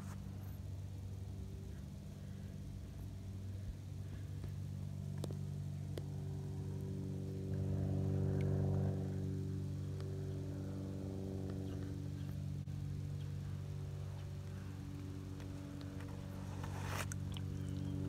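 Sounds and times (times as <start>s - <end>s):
low humming motor: 0.0s - 18.0s.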